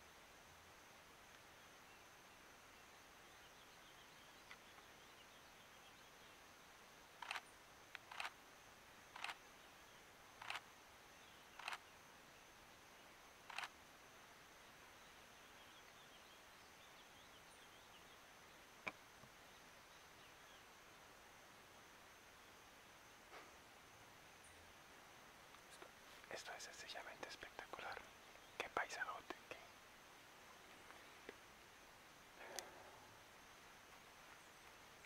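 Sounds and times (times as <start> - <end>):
faint high chirping: 25.7 - 29.8.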